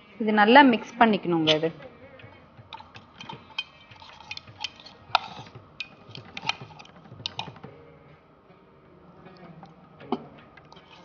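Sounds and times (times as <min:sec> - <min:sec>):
metal spoon clinking in pot: 0:02.7 - 0:07.6.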